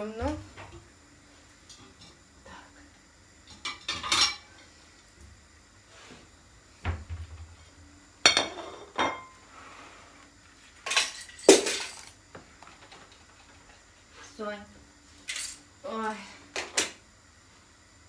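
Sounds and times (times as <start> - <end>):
dishes and utensils clattering: 3.5 - 4.5, 8.3 - 9.4.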